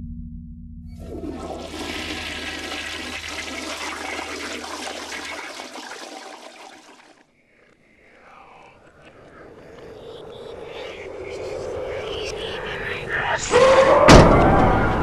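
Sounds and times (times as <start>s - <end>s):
toilet flushing: 1.0s - 7.3s.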